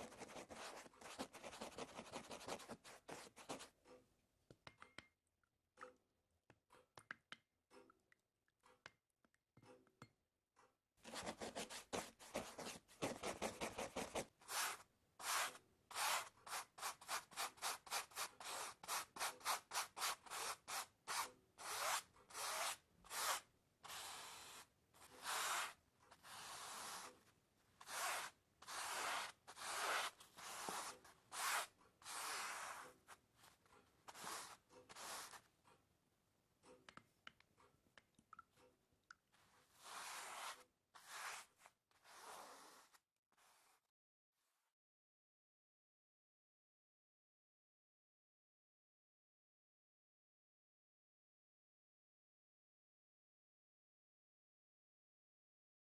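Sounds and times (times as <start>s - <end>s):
rubbing on rough surface: 11.1s - 27.2s, 27.8s - 35.5s, 39.7s - 43.8s.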